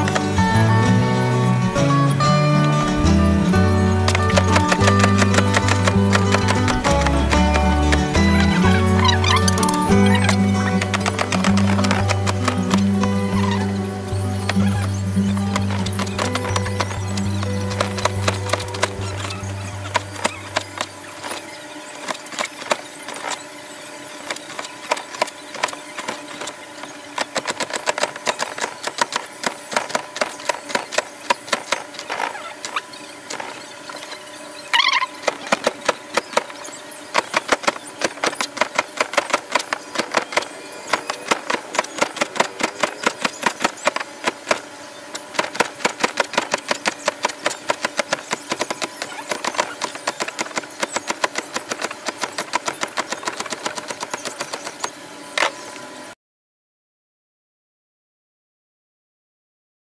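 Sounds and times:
high squeak: 0:08.1 - 0:23.5, 0:32.1 - 0:38.6.

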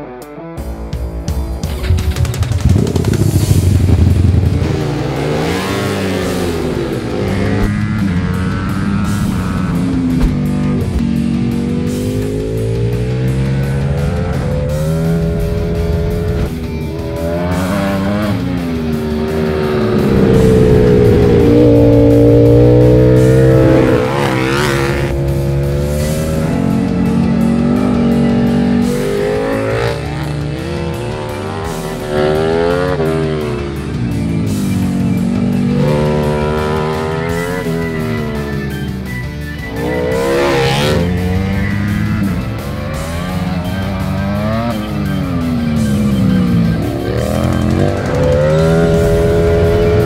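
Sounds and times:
motorcycle engine revving: 0:01.7 - 0:50.0.

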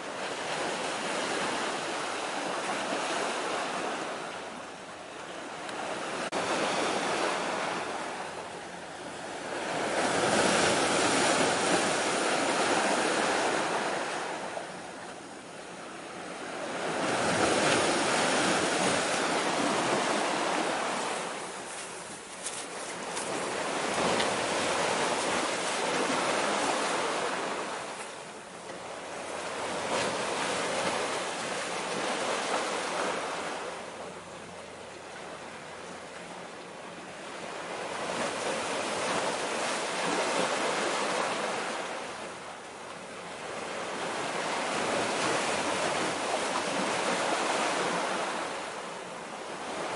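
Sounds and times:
sea waves washing against rocks: 0:09.1 - 0:14.7, 0:16.4 - 0:28.0.

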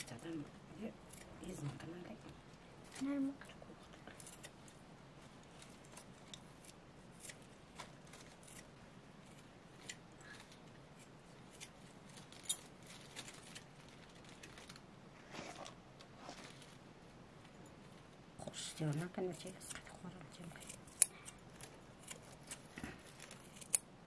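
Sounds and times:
scissors snipping greens: 0:18.9 - 0:23.9.

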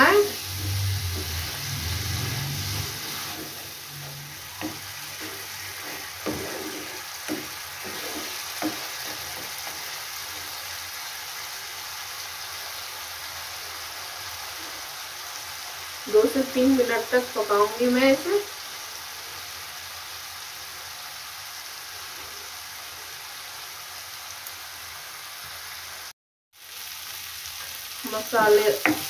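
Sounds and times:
paste sizzling in frying pan: 0:00.0 - 0:29.0
spoon stirring and scraping: 0:02.4 - 0:10.7, 0:28.4 - 0:29.0
spoon knocking against pan: 0:04.1 - 0:09.9, 0:28.4 - 0:29.0.

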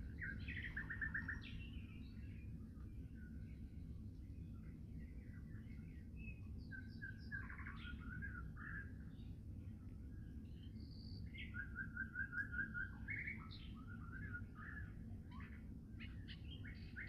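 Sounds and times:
steady low rumble: 0:00.0 - 0:11.4
songbirds singing: 0:00.0 - 0:17.0.

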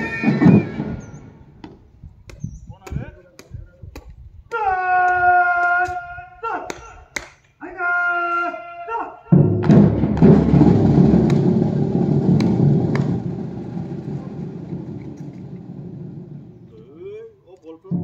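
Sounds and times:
military drum roll: 0:00.0 - 0:01.3, 0:09.3 - 0:17.1
person shouting drill command: 0:07.6 - 0:09.3.

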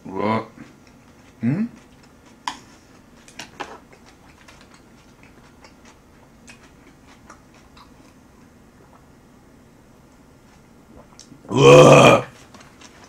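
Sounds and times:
chewing food: 0:00.6 - 0:09.2.

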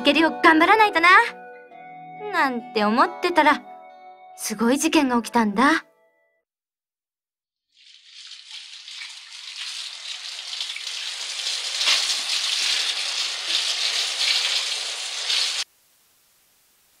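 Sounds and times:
crackling hissing noise: 0:11.1 - 0:17.0.

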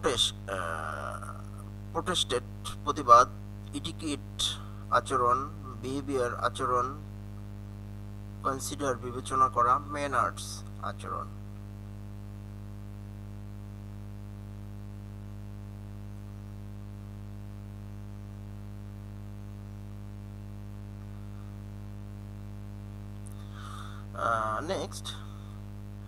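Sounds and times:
electrical hum: 0:00.0 - 0:26.0
faint hiss: 0:23.2 - 0:25.7.

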